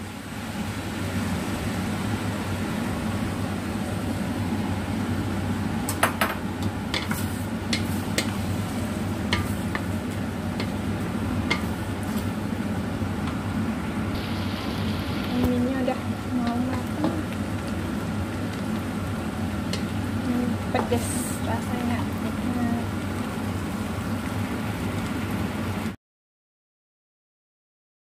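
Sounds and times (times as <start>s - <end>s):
food sizzling in a wok: 0.0s - 26.0s
wooden spatula scraping a pan: 7.0s - 10.8s.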